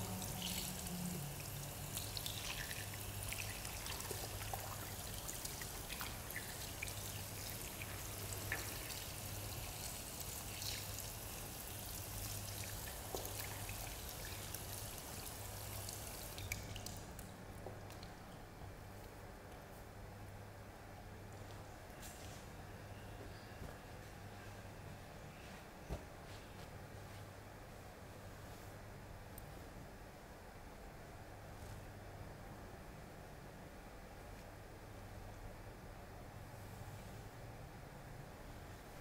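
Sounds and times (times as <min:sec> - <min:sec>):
running water: 0:00.0 - 0:17.3.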